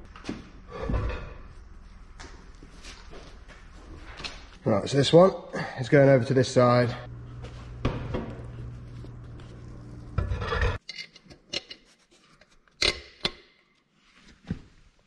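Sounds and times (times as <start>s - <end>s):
steady low hum: 5.6s - 10.8s.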